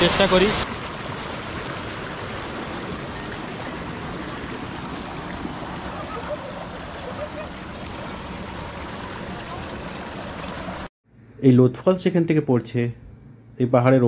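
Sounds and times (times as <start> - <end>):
water rushing over rocks: 0.0 - 10.9.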